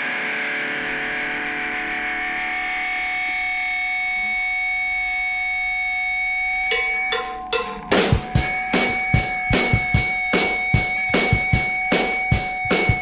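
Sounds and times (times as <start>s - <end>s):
distorted electric guitar chord: 0.0s - 13.0s
drum hits: 6.7s - 13.0s.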